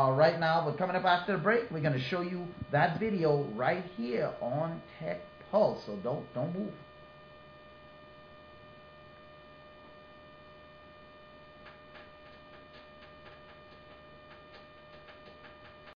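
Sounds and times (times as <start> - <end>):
faint electrical hum: 0.0 - 16.0
faint irregular ticks: 11.6 - 16.0.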